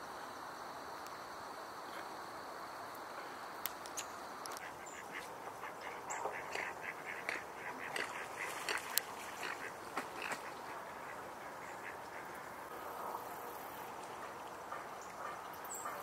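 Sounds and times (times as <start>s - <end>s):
steady hiss: 0.0s - 16.0s
ducks quacking: 4.6s - 12.5s.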